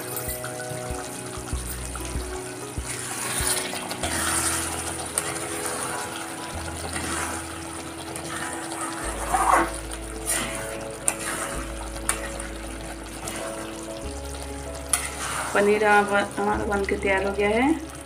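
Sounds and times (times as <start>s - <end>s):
curry simmering: 0.0s - 18.0s
metal spatula scraping pan: 8.2s - 12.5s, 14.9s - 15.7s.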